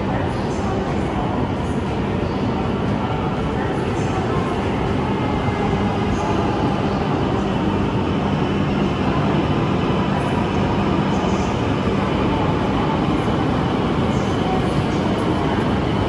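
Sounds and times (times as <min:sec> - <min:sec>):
train running noise: 0:00.0 - 0:16.0.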